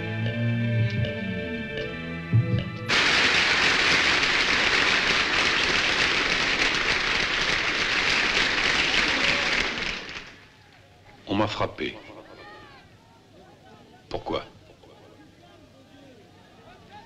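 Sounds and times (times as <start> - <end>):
crowd applauding: 2.9 - 10.6.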